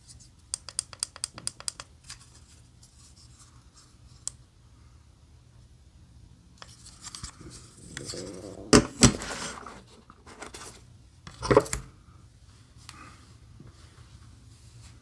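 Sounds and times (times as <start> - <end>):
paper and card rustling: 6.6 - 10.8.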